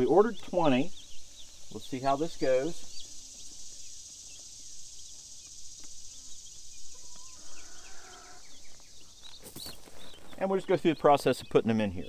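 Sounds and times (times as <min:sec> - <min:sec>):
chicks peeping: 0:00.0 - 0:12.0
high-pitched insect drone: 0:00.7 - 0:09.2.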